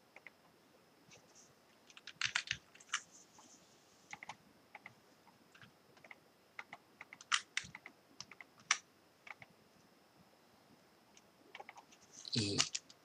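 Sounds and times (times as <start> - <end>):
keyboard and mouse clicks: 0.1 - 0.4, 1.9 - 3.1, 4.1 - 5.0, 5.6 - 9.5, 11.5 - 13.0.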